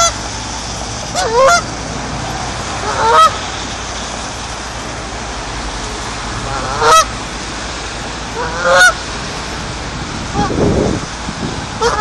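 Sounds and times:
goose honking: 0:01.1 - 0:01.7, 0:02.7 - 0:03.5, 0:06.4 - 0:07.1, 0:08.3 - 0:09.0, 0:10.3 - 0:10.6, 0:11.8 - 0:12.0.

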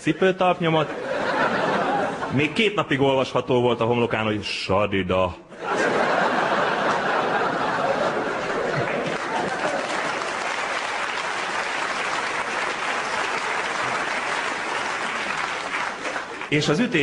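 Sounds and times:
audience laughing: 0:00.8 - 0:02.6, 0:05.5 - 0:11.0, 0:11.8 - 0:17.0
audience applauding: 0:06.4 - 0:17.0.

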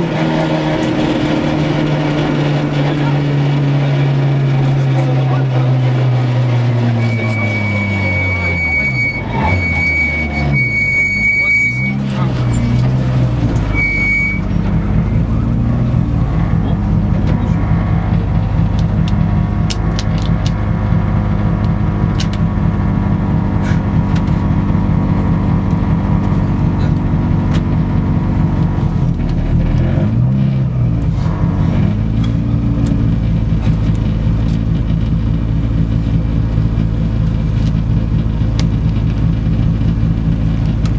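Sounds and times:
rally car engine idling: 0:00.0 - 0:40.9
engine rev blip: 0:04.5 - 0:15.6.

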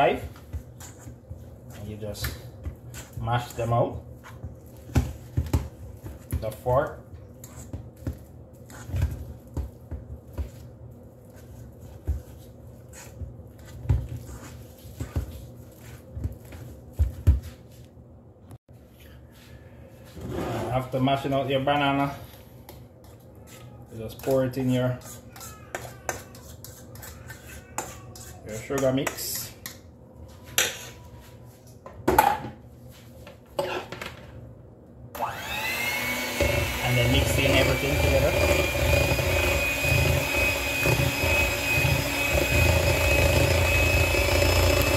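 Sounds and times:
fork mashing bananas in metal bowl: 0:22.7 - 0:29.8, 0:36.2 - 0:44.9.

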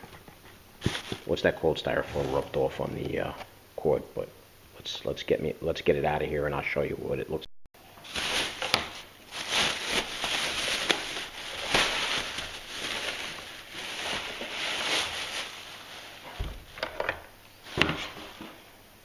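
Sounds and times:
plastic bag crinkling: 0:00.8 - 0:03.3, 0:08.0 - 0:17.0.

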